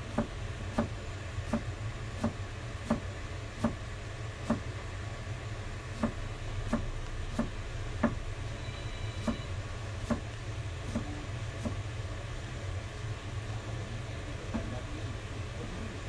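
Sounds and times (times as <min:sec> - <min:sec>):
knife chopping on cutting board: 0:00.1 - 0:00.9, 0:01.5 - 0:03.8, 0:04.4 - 0:04.6, 0:06.0 - 0:08.2, 0:10.0 - 0:10.3.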